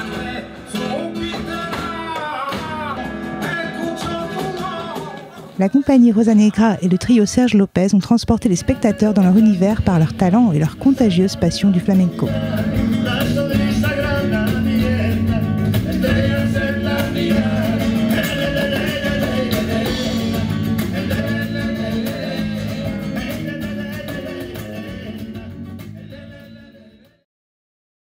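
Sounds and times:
drums: 0.0 - 6.4, 9.2 - 27.2
flamenco acoustic guitar: 0.0 - 27.1
bass guitar: 8.3 - 27.2.

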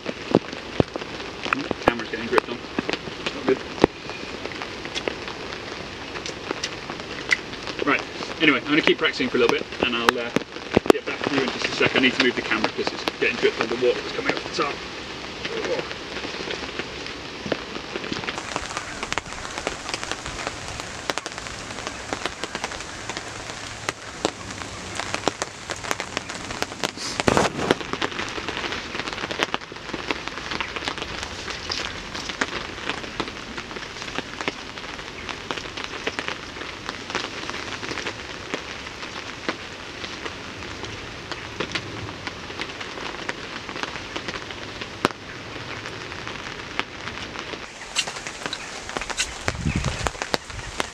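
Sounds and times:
heavy rain falling: 0.0 - 50.9.

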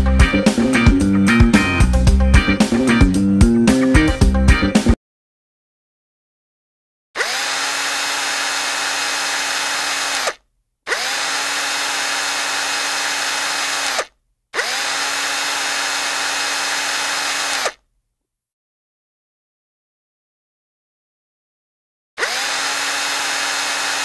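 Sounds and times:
electric hand drill running: 7.2 - 17.8, 22.2 - 24.0.

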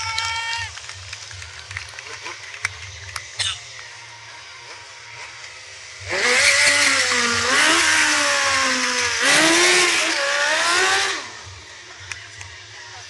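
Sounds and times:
motorcycle engine revving: 4.7 - 11.9.

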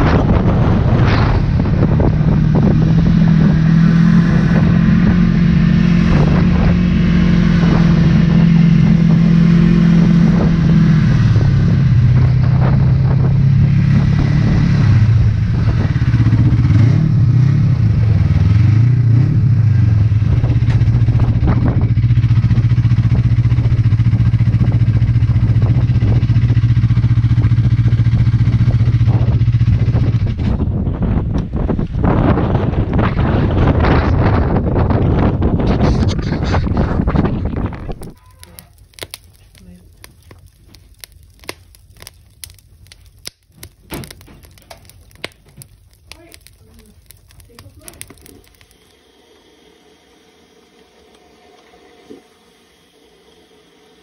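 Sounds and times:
snowmobile engine running: 0.0 - 38.2.

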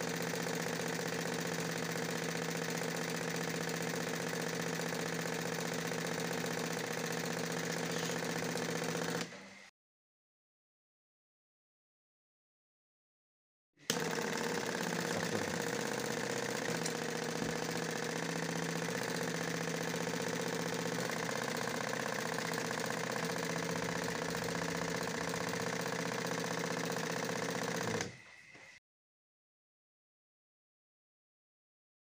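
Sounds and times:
small motor driving air pump: 0.0 - 9.7, 13.8 - 28.8.

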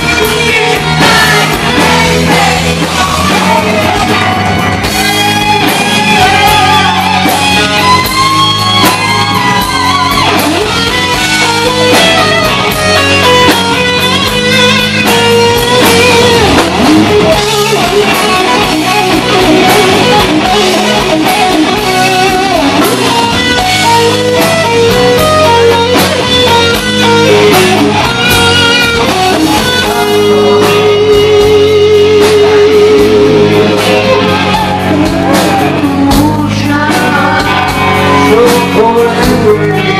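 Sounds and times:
bass guitar: 0.0 - 39.9
drums: 0.0 - 39.9
electric guitar solo: 0.0 - 39.9.

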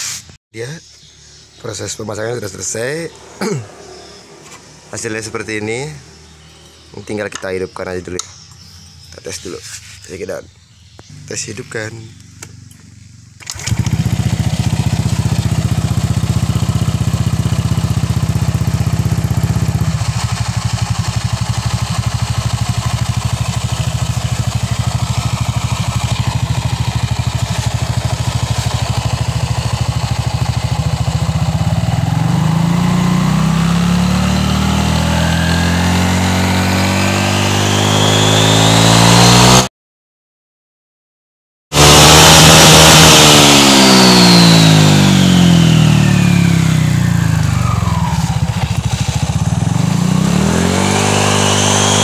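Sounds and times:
scooter engine starting and idling: 12.1 - 39.0, 41.8 - 52.0.

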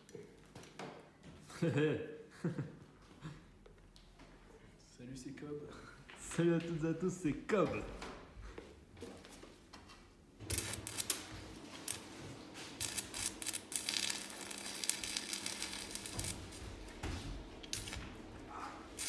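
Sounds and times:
arc welding crackling: 10.4 - 19.0.

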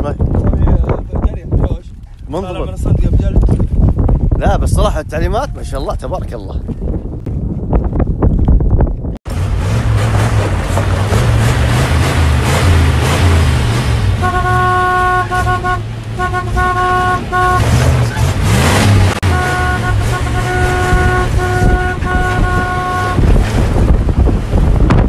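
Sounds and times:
vehicle driving on sand: 7.6 - 25.0
vehicle horn honking: 14.2 - 18.0, 19.2 - 23.4.

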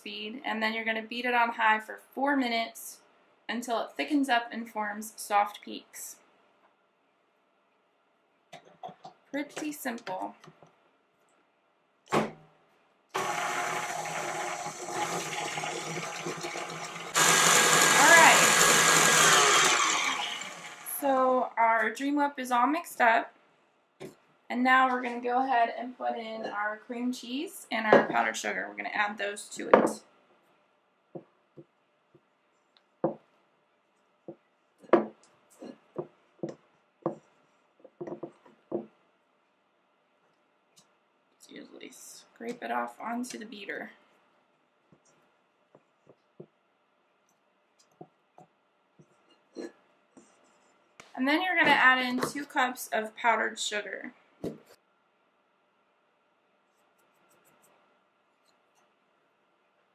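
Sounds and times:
stand mixer whisking liquid: 13.2 - 20.9.

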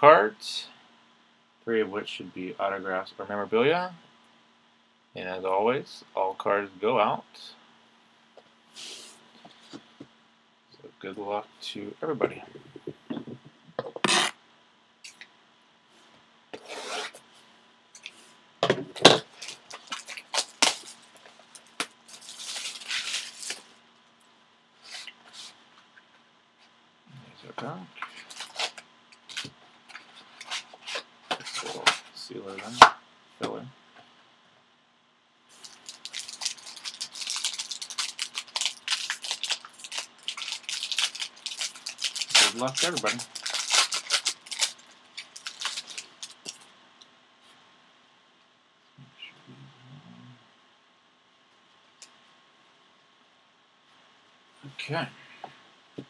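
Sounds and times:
plastic wrap crackling as it splits: 19.2 - 23.7, 28.1 - 29.5, 35.6 - 46.6
plastic crinkling: 19.2 - 23.8, 28.0 - 32.0, 35.5 - 46.7
plastic wrap scraping on box: 22.1 - 23.7, 28.0 - 32.0, 35.6 - 46.6.

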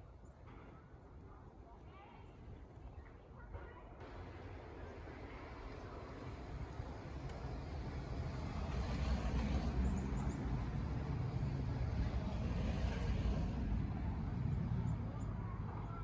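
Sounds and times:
motor vehicle passing: 6.0 - 16.0.

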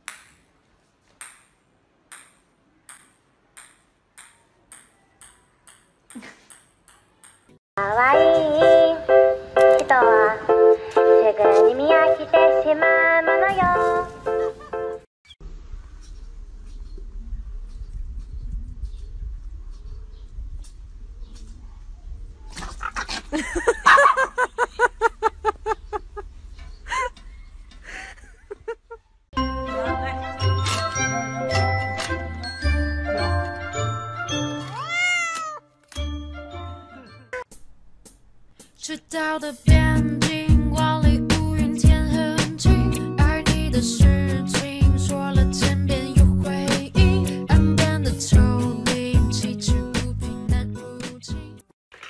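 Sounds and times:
ping-pong ball ticking on tiles: 2.1 - 7.5.

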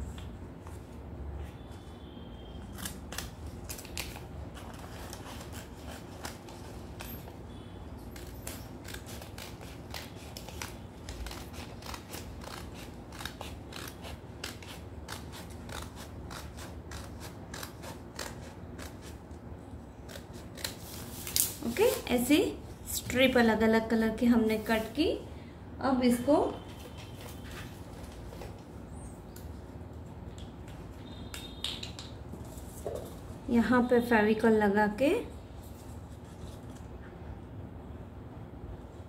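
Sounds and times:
scissors snipping paper: 2.6 - 7.4, 8.1 - 19.2, 20.0 - 22.0.

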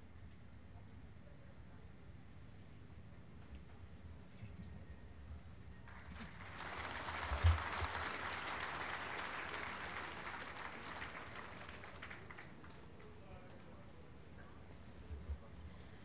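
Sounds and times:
audience applauding: 5.9 - 13.2.

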